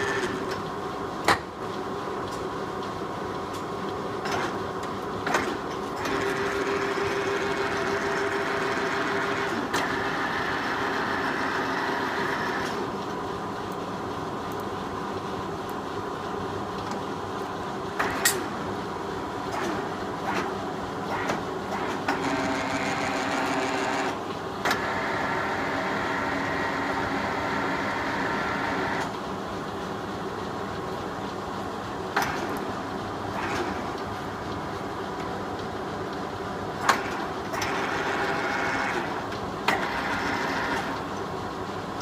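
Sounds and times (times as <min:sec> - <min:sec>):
lathe gearing whine: 0:00.0 - 0:01.2, 0:01.8 - 0:42.0.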